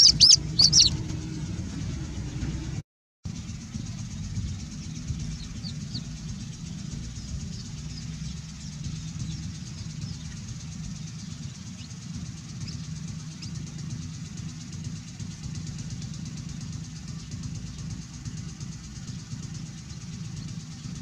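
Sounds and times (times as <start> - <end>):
faint bird chirps: 0.0 - 1.0
low outdoor rumble: 0.0 - 21.0.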